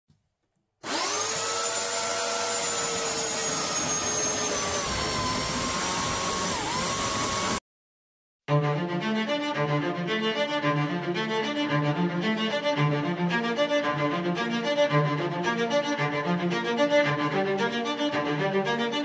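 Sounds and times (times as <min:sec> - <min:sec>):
rotary tool high whine: 0:00.8 - 0:07.6.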